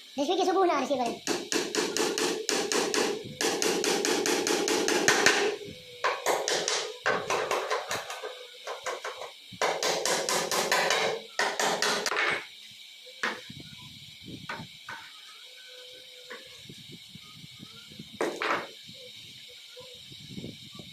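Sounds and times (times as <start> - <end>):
claw hammer driving nails: 1.2 - 8.2, 9.6 - 12.4.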